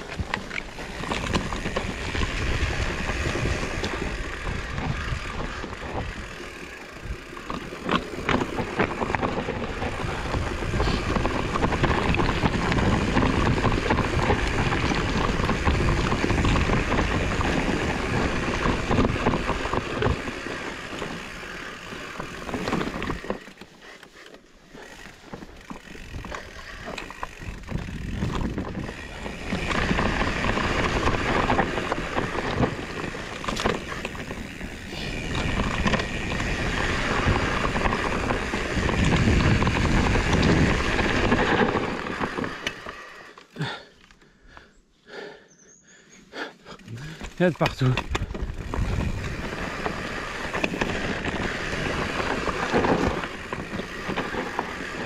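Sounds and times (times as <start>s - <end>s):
bike rattling clicks: 0.0s - 44.7s, 46.5s - 55.0s
bike tyre rumble: 0.0s - 55.0s
wind on microphone: 35.1s - 42.3s, 48.1s - 54.8s.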